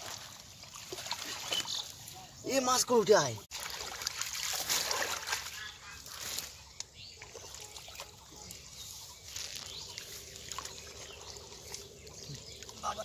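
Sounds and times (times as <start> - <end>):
small splashes: 0.0 - 2.2, 3.5 - 8.6, 9.4 - 13.0
water trickling through net mesh: 3.5 - 6.5.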